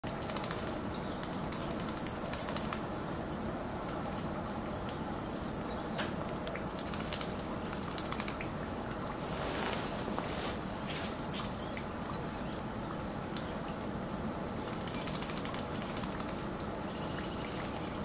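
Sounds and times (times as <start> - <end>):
birds fluttering wingbeats: 0.0 - 2.9, 6.4 - 11.5, 14.6 - 16.6
birds splashing clicks: 0.0 - 2.9, 5.9 - 8.6, 14.6 - 18.0
spraying water: 0.0 - 13.2.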